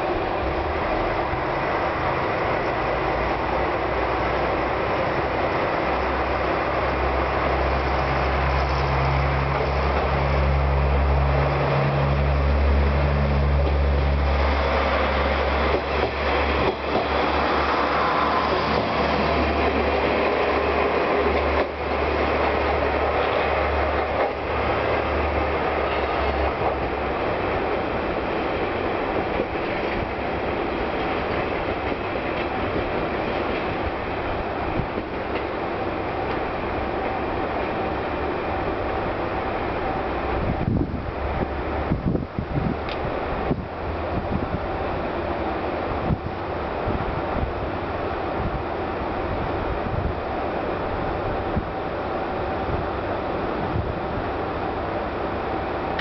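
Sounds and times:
wheels clacking over rail joints: 0.0s - 38.0s.

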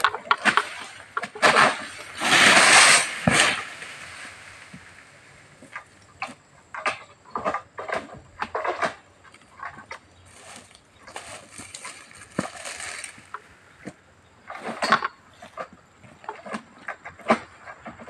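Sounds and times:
fronds rustling: 0.0s - 6.8s, 7.8s - 14.9s
sickle scraping fronds: 0.0s - 18.0s.

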